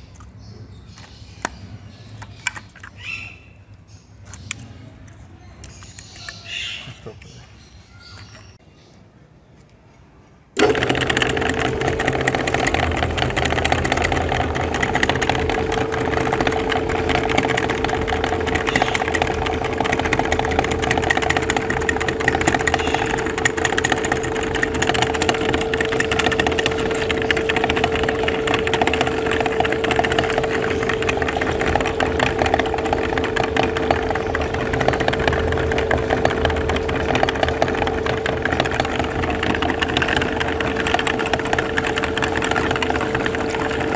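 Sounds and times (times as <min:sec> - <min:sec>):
meat grinder motor humming: 0:10.6 - 0:43.9.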